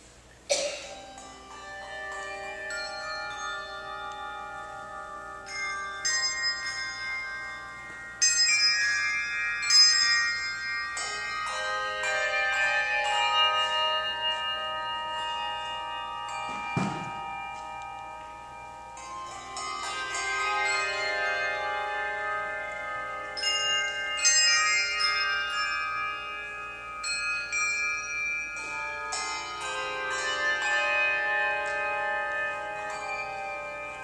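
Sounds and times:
handbells ringing: 0:00.0 - 0:34.0.

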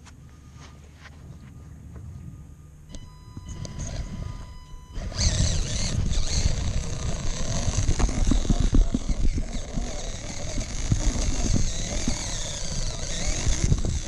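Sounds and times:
electric motor whine: 0:02.9 - 0:14.0.

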